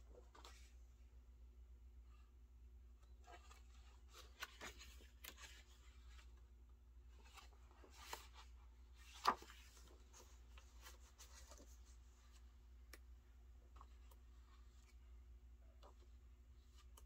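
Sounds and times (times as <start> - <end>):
pages turning: 3.2 - 6.4, 7.2 - 13.0.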